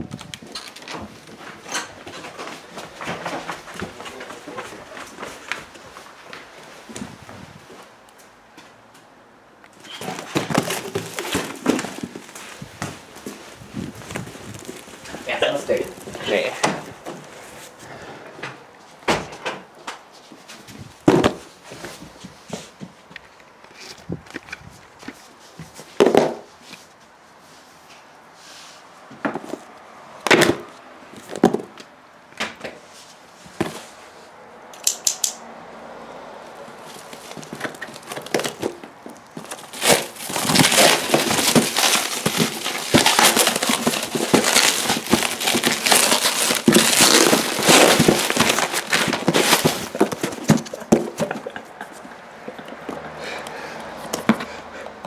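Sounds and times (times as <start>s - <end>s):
plastic wrapping crinkling and tearing: 9.9s - 17.4s, 36.4s - 51.6s
knocks on parcel: 21.1s - 21.4s.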